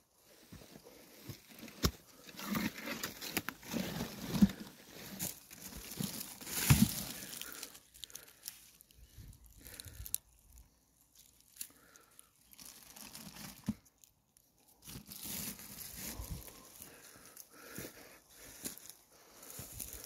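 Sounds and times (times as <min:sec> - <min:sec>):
footsteps crunching through grass: 0:03.8 - 0:07.6, 0:15.1 - 0:20.0.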